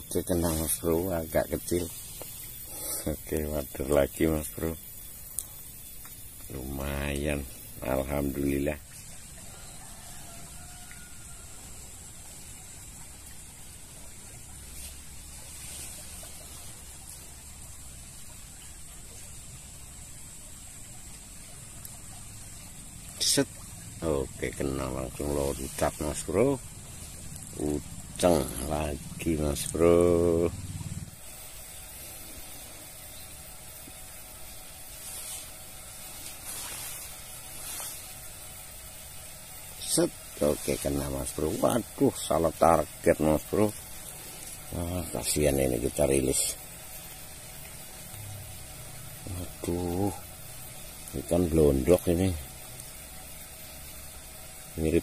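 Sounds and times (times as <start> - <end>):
faint hiss: 0.0 - 55.0
shallow stream trickling: 0.0 - 55.0
short scratchy hisses: 36.2 - 38.2.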